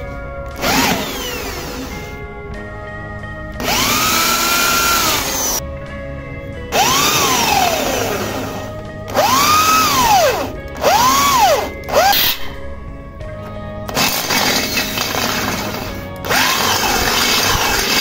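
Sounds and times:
electric drill whine: 0.0s - 2.2s, 3.6s - 5.6s, 6.7s - 12.5s, 13.9s - 18.0s.

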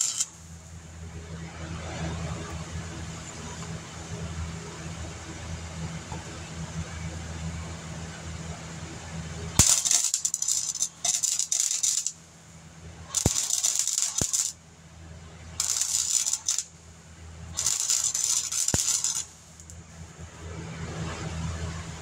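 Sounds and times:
welding bursts on sheet metal: 0.0s - 0.5s, 9.6s - 12.2s, 13.1s - 14.6s, 15.6s - 16.7s, 17.6s - 19.7s
welder sharp click: 13.2s - 14.5s, 17.6s - 19.3s.

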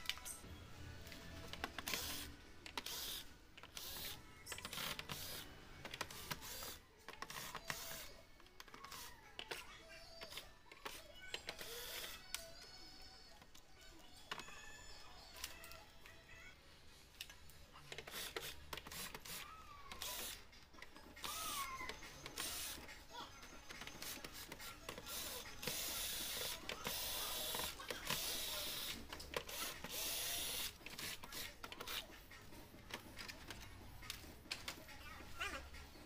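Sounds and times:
cordless drill motor whirring: 3.8s - 4.2s, 29.5s - 31.4s.

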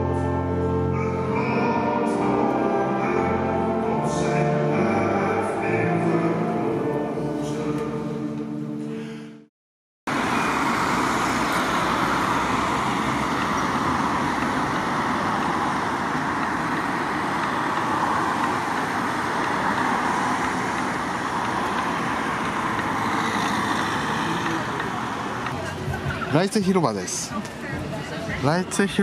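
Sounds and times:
city street traffic: 0.0s - 9.4s, 10.1s - 29.0s.

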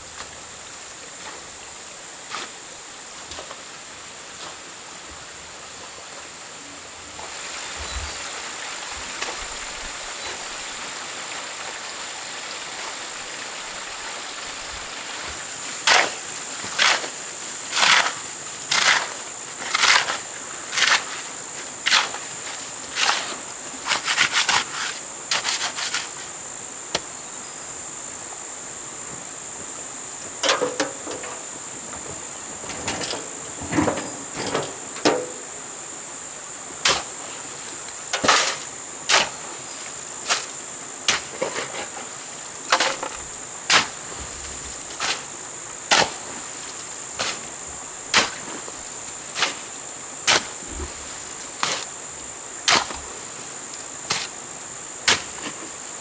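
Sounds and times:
hand tool striking: 30.4s - 31.3s.

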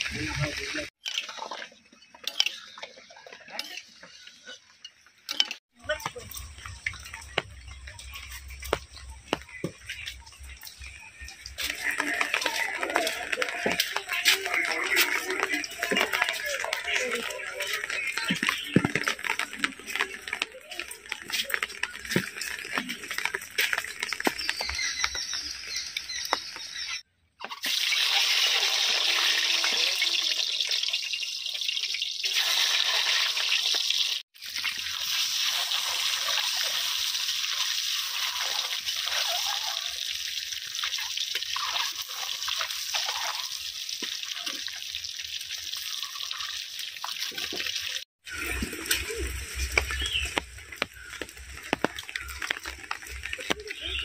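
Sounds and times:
water trickling and dripping: 2.0s - 27.0s, 27.7s - 54.0s
steady rain falling: 6.2s - 26.4s, 47.9s - 54.0s.

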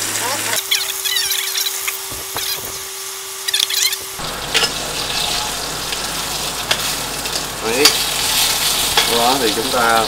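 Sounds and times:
chicken sizzling in frying pan: 0.0s - 10.0s
steady hum: 3.6s - 10.0s.

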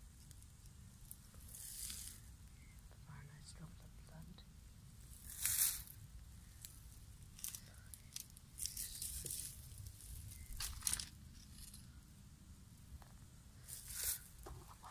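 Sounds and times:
dry leaves rustling: 1.4s - 2.2s, 5.1s - 5.9s, 7.3s - 11.7s, 13.6s - 14.9s.

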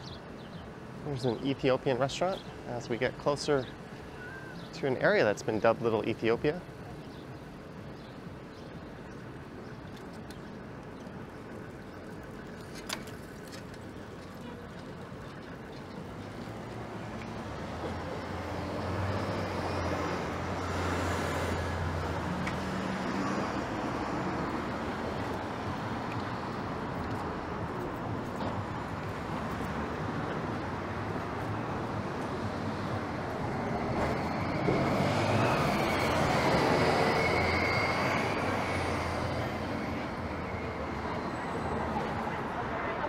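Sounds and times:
vehicles passing: 0.0s - 43.0s
heavy vehicle passing: 16.6s - 43.0s.

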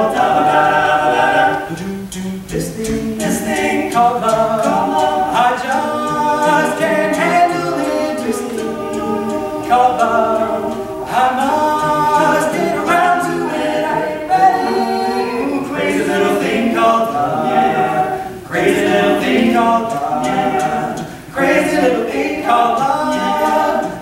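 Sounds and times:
male quartet singing a cappella: 0.0s - 24.0s.

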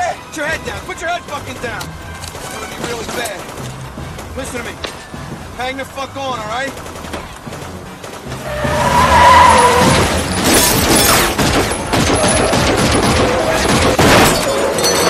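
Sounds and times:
tyres squealing and skidding: 0.0s - 3.4s, 8.1s - 15.0s
cars racing: 7.0s - 13.9s.

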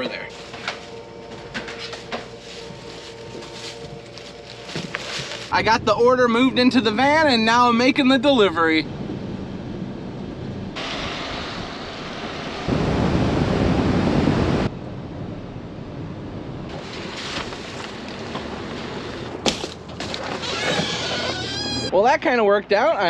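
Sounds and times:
road and tyre noise on wet road: 9.7s - 14.3s, 16.7s - 20.0s.

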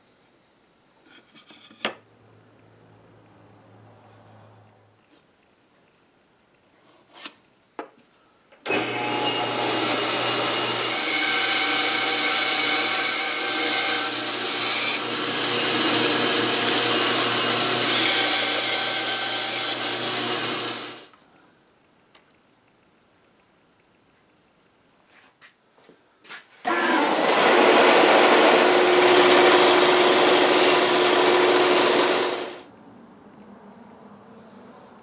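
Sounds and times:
bandsaw cutting wood: 8.7s - 21.1s, 26.7s - 32.7s.

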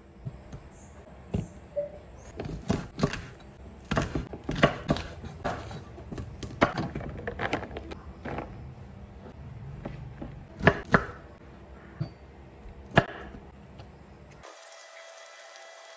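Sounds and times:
knife chopping on wooden board: 2.4s - 6.9s, 10.2s - 11.2s.

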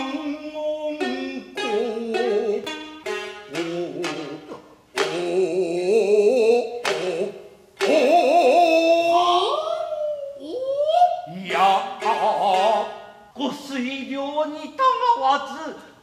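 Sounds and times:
shamisen plucks: 0.0s - 9.1s, 11.6s - 13.4s
chanter singing with heavy vibrato: 0.0s - 15.6s.

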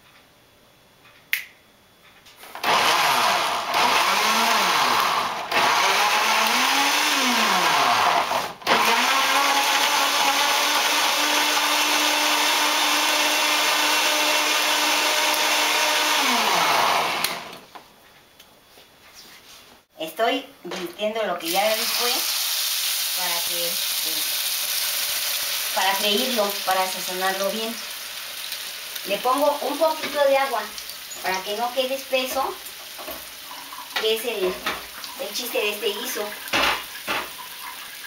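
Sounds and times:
blender motor running: 2.6s - 17.6s.

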